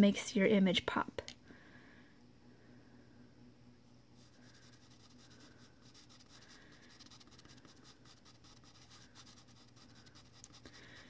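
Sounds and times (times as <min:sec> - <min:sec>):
pencil scratching on paper: 0:04.2 - 0:11.0.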